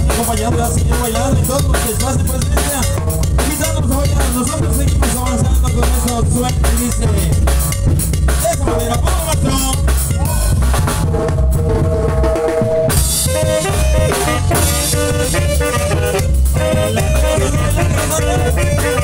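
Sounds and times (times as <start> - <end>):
bass: 0.0 - 19.0
drum kit beat: 0.0 - 19.0
melody instruments holding long notes: 8.5 - 19.0.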